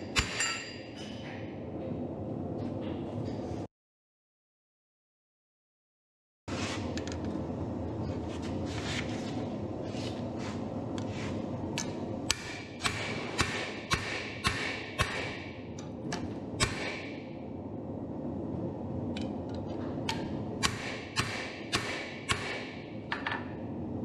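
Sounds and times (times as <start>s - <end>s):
hammer blows on hot steel: 12.3s - 15.6s.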